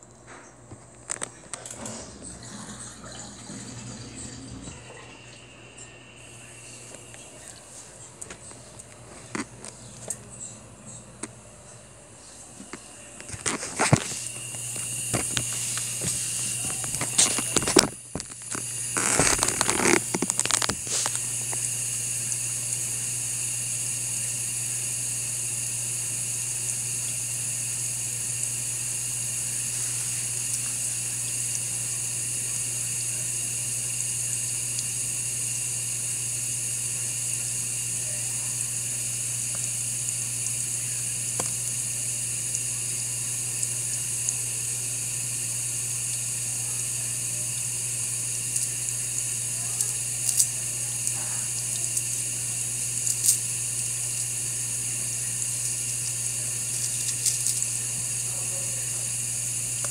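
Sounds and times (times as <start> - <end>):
low hum: 1.4 - 20.6
dishwasher water spraying: 1.6 - 10.1, 12.5 - 24.7.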